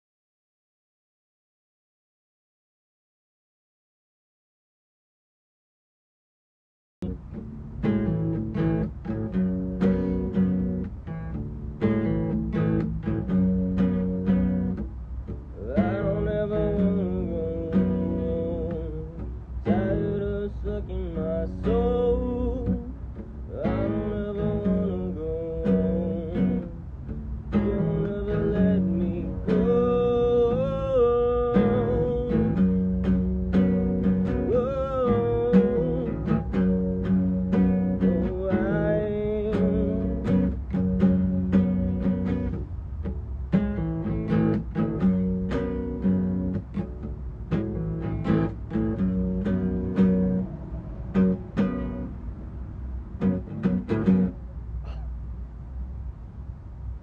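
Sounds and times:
acoustic guitar picking: 7.0 - 55.2
person singing: 15.5 - 26.8, 27.5 - 32.8, 34.1 - 36.7, 37.6 - 40.6.

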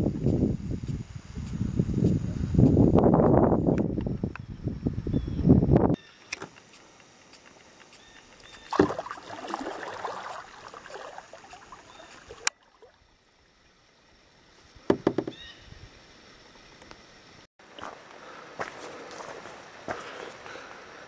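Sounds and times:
water splashing against canoe: 8.4 - 13.1.

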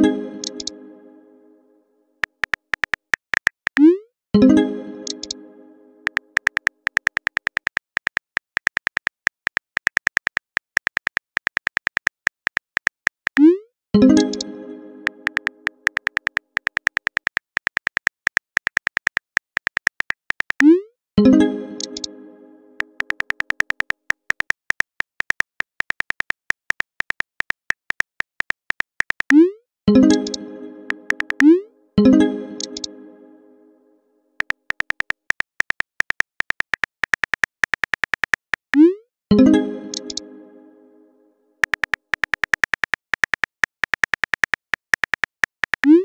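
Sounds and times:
phone keyboard typing clicks: 0.4 - 0.7, 2.2 - 3.9, 5.0 - 5.4, 6.0 - 13.5, 15.2 - 20.7, 21.8 - 22.1, 22.8 - 29.4, 30.1 - 31.5, 32.6 - 32.9, 34.4 - 38.8, 39.9 - 40.2, 41.6 - 46.0.

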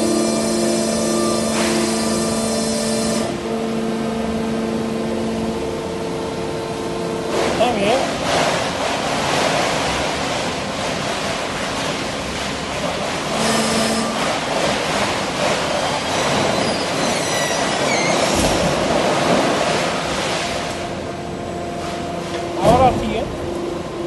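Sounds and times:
industrial machine noise: 0.0 - 24.0
roller conveyor running: 0.0 - 24.0.

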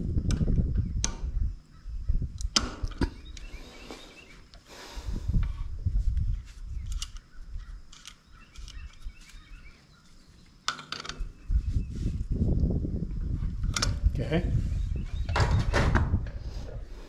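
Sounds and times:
low rumble: 0.0 - 2.4
birds chirping: 0.7 - 5.4, 6.2 - 12.4, 13.6 - 17.0
handling noise of engine parts: 6.3 - 11.4.

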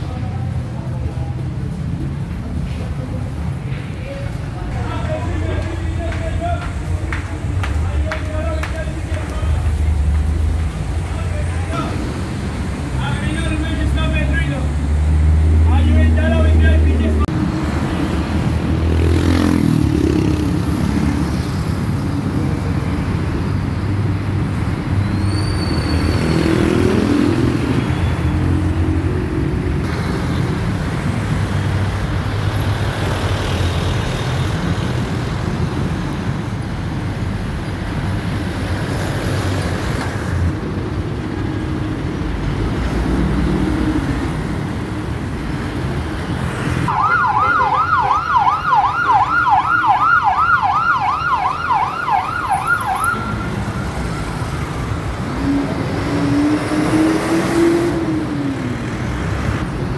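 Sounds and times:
street traffic rumble: 0.0 - 59.9
brief high squeal: 25.1 - 26.2
yelping emergency siren: 46.9 - 53.7.

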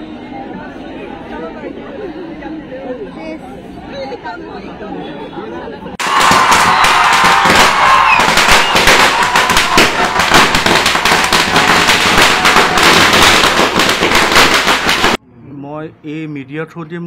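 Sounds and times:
firecrackers crackling: 6.0 - 15.2.

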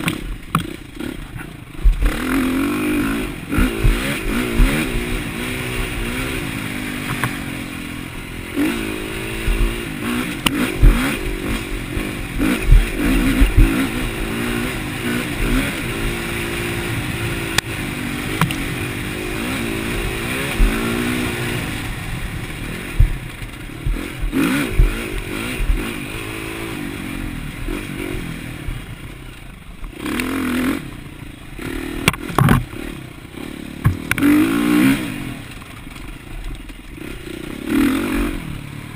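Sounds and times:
bike clattering over bumps: 0.0 - 2.3, 3.4 - 6.0, 9.4 - 16.8, 19.8 - 26.3, 32.0 - 32.8, 33.8 - 34.4
dirt bike engine revving: 0.0 - 38.9.

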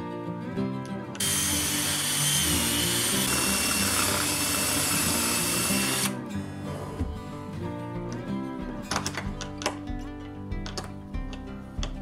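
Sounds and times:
background music: 0.0 - 12.0
power drill whining: 1.2 - 6.2.

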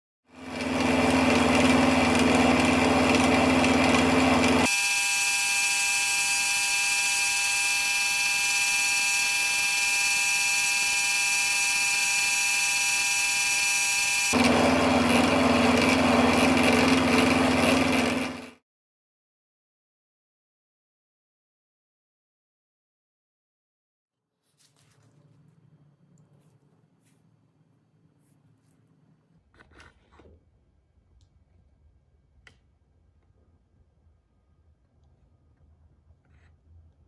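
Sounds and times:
drill press motor hum: 0.4 - 18.6
high-pitched motor whine: 1.3 - 18.4.

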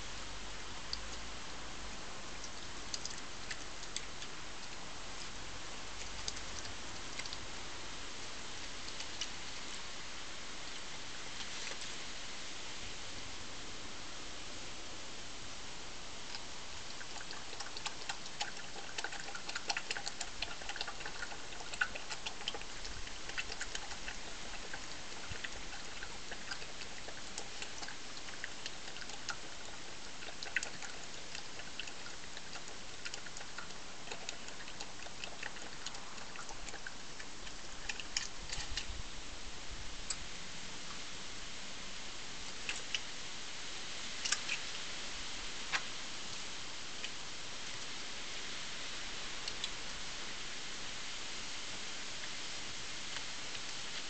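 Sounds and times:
steady hiss: 0.0 - 54.0
badger chewing food: 0.4 - 12.0, 16.2 - 41.2, 42.4 - 43.1, 44.1 - 45.0, 49.3 - 50.1.

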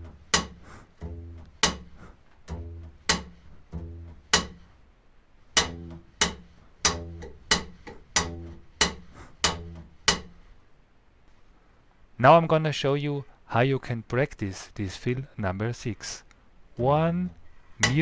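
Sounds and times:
slap double bass playing: 0.0 - 4.8, 5.5 - 10.5, 17.8 - 18.0.

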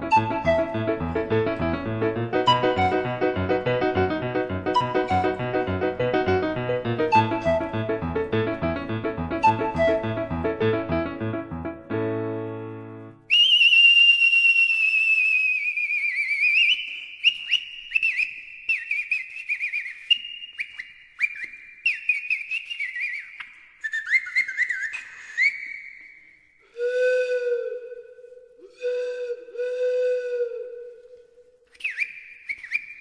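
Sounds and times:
lower pan flute held notes: 0.0 - 1.3, 2.4 - 8.0, 26.6 - 32.0
high pan flute trills: 26.6 - 31.6.

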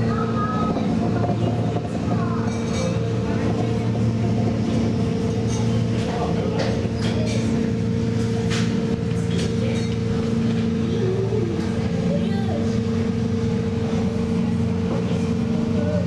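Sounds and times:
paddle wheel churning water: 0.0 - 16.0.

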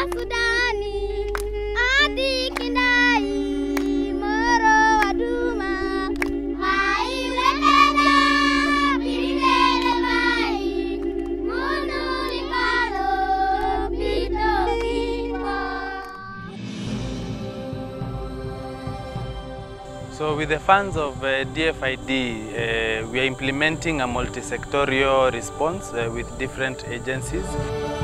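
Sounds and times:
held backing note: 0.0 - 28.0
hand claps: 1.3 - 1.5, 2.5 - 2.8, 3.7 - 4.0, 6.2 - 6.4
children singing: 1.7 - 17.0, 17.7 - 28.0.

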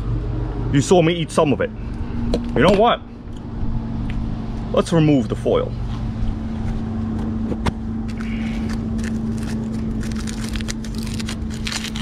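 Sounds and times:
low hum: 0.0 - 12.0
aluminium foil crinkling: 8.1 - 12.0.

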